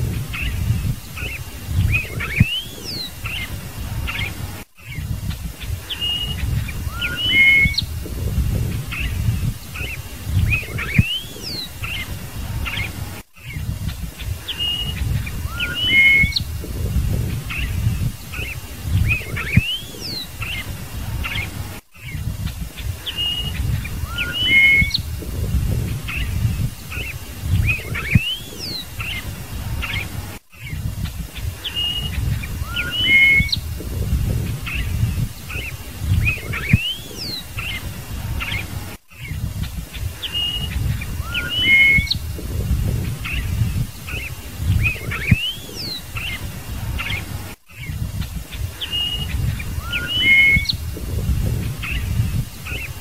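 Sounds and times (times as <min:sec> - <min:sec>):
blackbird singing: 0:00.1 - 0:48.0, 0:48.6 - 0:53.0
low rumble: 0:07.8 - 0:11.0, 0:16.4 - 0:19.6, 0:25.0 - 0:28.2, 0:33.6 - 0:36.8, 0:42.2 - 0:44.0, 0:50.8 - 0:52.6.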